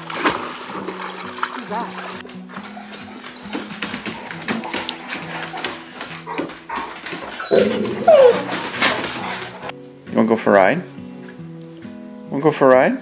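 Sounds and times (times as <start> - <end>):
background music: 0.0 - 13.0
dogs whining: 2.4 - 9.7
dog yelping: 2.5 - 4.3, 5.5 - 9.7.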